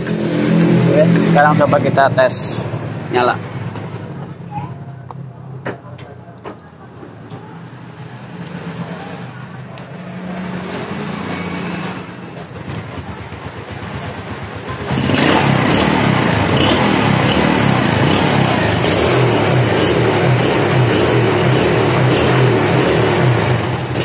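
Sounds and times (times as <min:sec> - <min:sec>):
motorcycle engine kick-started: 0:12.4 - 0:15.9.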